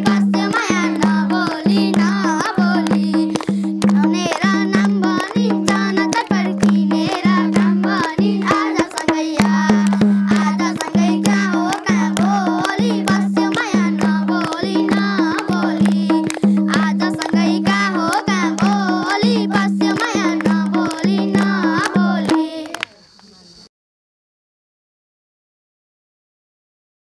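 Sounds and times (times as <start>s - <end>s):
hand drum beat: 0.0s - 22.8s
boy singing folk song: 0.0s - 23.0s
people clapping along: 0.0s - 23.0s.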